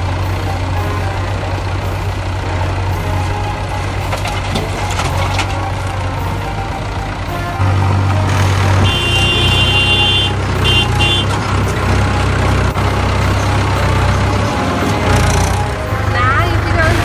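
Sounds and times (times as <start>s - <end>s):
high-pitched horn beeps: 0.0s - 11.9s
tractor engine droning: 0.0s - 17.0s.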